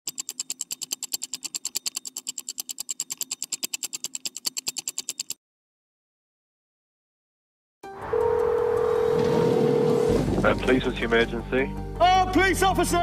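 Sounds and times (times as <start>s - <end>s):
rapid mechanical clicking: 0.0s - 5.4s.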